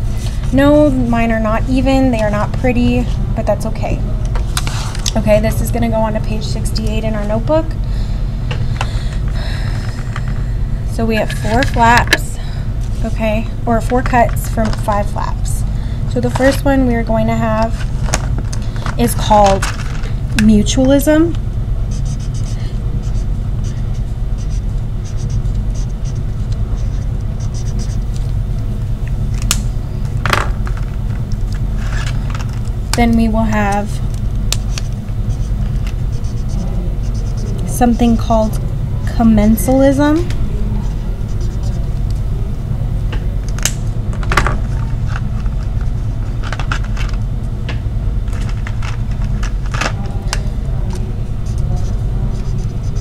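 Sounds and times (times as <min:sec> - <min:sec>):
low background rumble: 0:00.0 - 0:53.0
steady low hum: 0:00.0 - 0:53.0
marker scratching on paper: 0:21.9 - 0:28.2, 0:34.6 - 0:38.1, 0:40.8 - 0:42.0, 0:51.4 - 0:53.0.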